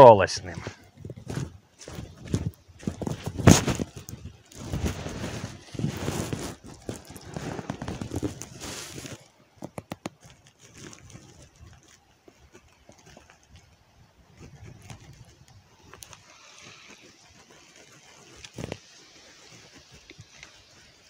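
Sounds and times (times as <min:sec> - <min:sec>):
dry reeds rustling: 0:00.0 - 0:21.0
plastic bag crinkling: 0:00.5 - 0:13.7.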